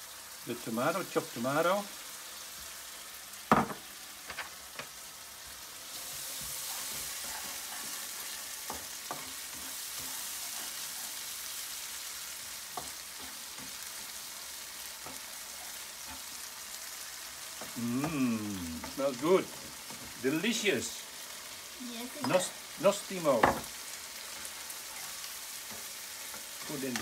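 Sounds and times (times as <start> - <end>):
paste sizzling in a pan: 0.0 - 27.0.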